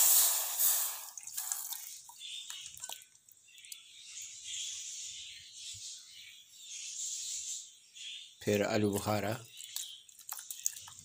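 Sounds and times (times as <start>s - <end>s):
liquid pouring into metal pot: 0.0s - 3.8s, 9.2s - 11.0s
drips and soft splats: 0.6s - 4.7s, 8.4s - 11.0s.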